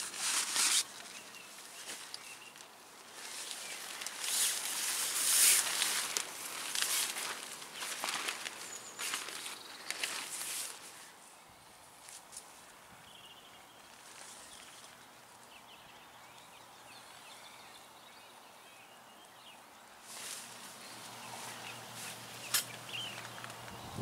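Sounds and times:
rustling: 0.0s - 11.3s, 13.8s - 15.0s, 20.0s - 23.7s
small birds chirping: 0.0s - 24.0s.

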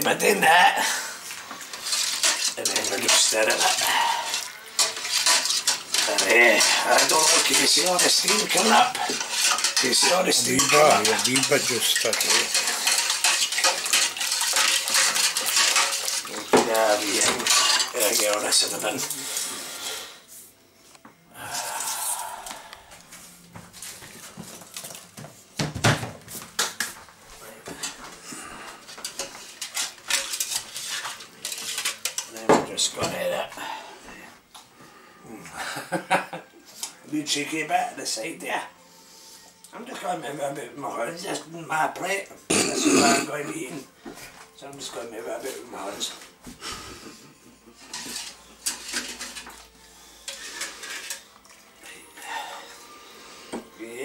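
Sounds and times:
utensils knocking against a pot: 1.6s - 18.3s.

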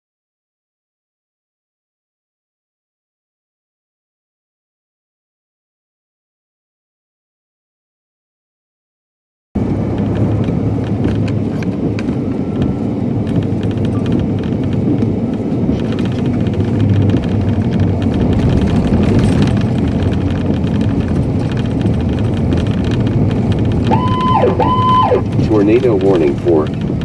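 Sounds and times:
loud rumbling wind: 9.6s - 27.0s.

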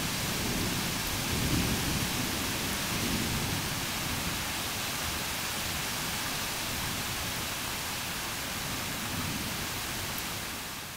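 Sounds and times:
heavy rain pouring: 0.0s - 10.9s.

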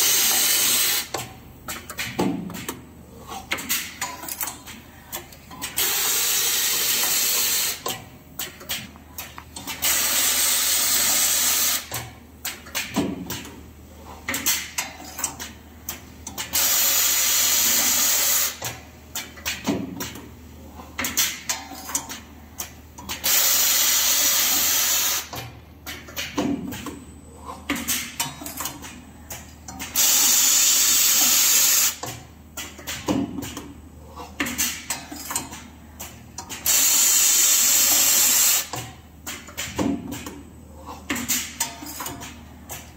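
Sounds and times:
clamps clicking and clunking: 31.9s - 36.8s, 38.7s - 42.9s.

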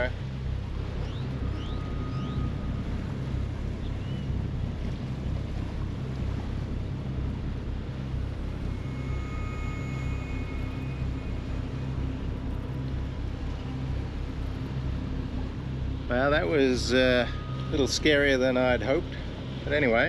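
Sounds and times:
boat engine low drone: 0.0s - 20.0s.

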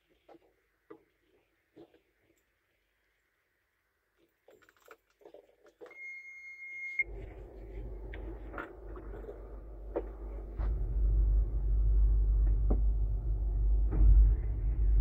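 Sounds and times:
diesel engine starting and running: 7.0s - 15.0s.

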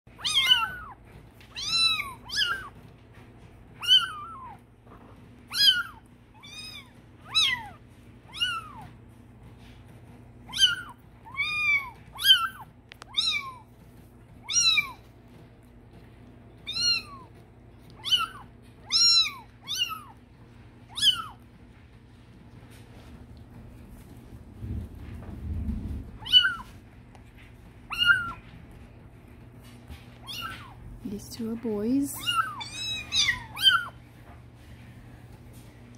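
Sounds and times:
kittens mewing: 0.1s - 2.8s, 3.8s - 4.7s, 5.4s - 9.0s, 10.5s - 13.8s, 14.4s - 15.1s, 16.6s - 20.3s, 20.9s - 21.4s, 26.1s - 26.8s, 27.8s - 28.6s, 30.2s - 31.0s, 32.1s - 34.1s.

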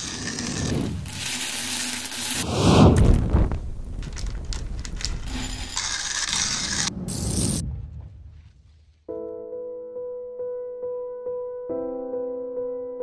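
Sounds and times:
beans rattling and clicking: 0.0s - 2.4s, 4.0s - 7.5s
beans scraping in cooling tray: 0.0s - 2.4s, 4.8s - 7.4s
coffee beans pouring: 0.0s - 2.4s, 4.0s - 7.6s.

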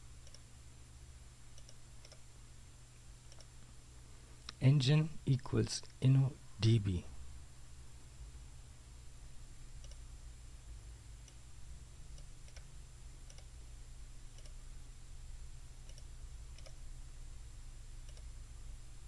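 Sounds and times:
low hum and hiss: 0.0s - 19.0s
computer mouse clicks: 0.2s - 0.5s, 1.5s - 2.2s, 3.3s - 3.6s, 9.8s - 10.1s, 12.1s - 13.5s, 14.3s - 14.6s, 15.8s - 16.8s, 18.0s - 18.3s.

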